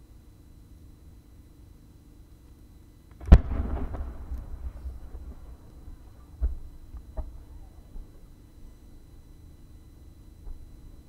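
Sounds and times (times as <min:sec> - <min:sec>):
firework mortar thump: 0:03.2 - 0:08.1.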